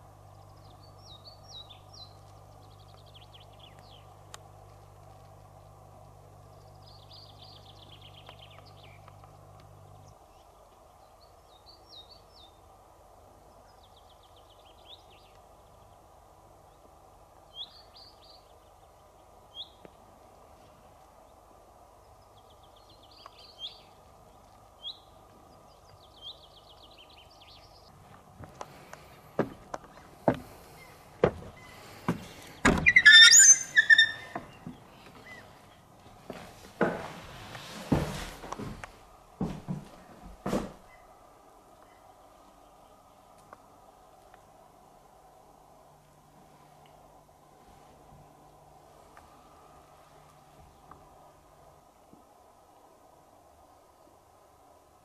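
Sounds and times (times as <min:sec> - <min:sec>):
small birds chirping: 0:00.0 - 0:36.1, 0:40.9 - 0:44.4
faint steady hum: 0:00.0 - 0:55.0
loud high-pitched squeal: 0:32.7 - 0:34.4.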